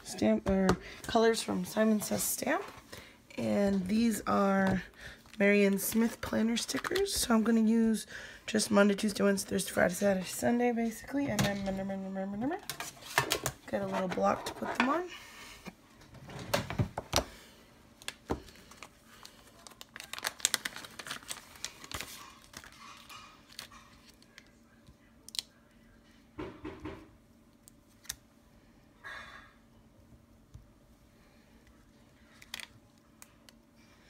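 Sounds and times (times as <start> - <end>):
plastic crinkling: 18.0 - 24.5.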